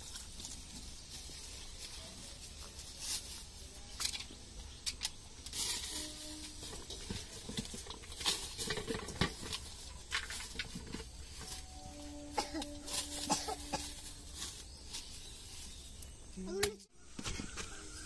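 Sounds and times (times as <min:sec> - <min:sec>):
plastic bag rustling: 0:05.3 - 0:16.3.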